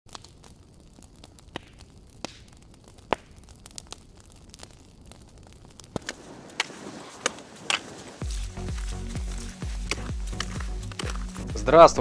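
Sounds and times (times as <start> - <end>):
crackling with sharp snaps: 0.1 - 12.0
low hiss: 5.3 - 12.0.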